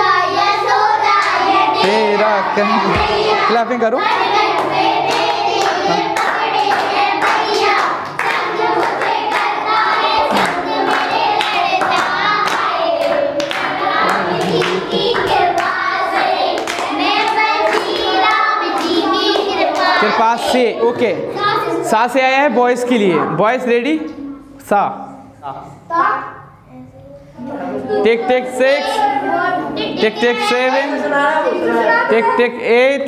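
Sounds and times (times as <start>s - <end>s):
children singing: 0.0s - 21.8s
children clapping: 1.1s - 1.5s, 4.0s - 20.2s.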